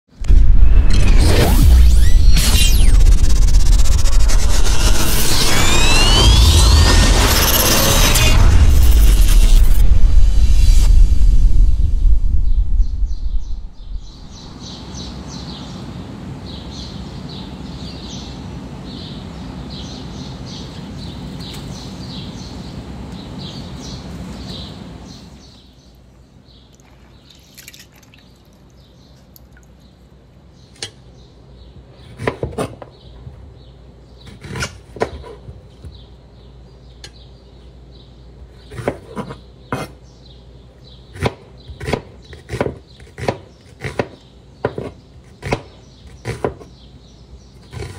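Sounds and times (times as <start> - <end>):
steady noise: 0.1 - 14.6
knife chopping on wooden board: 32.2 - 32.9, 41.2 - 46.7.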